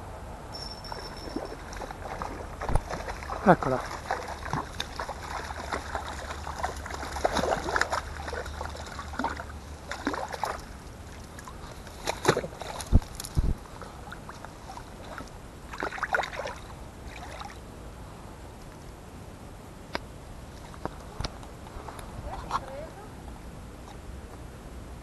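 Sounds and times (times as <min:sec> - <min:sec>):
fish splashing in water: 0:01.0 - 0:17.6.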